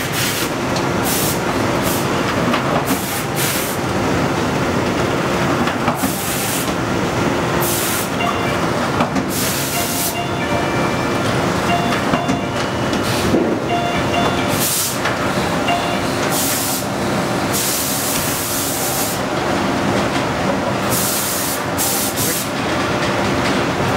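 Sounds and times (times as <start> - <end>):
faint short beeping: 9.5 - 15.0.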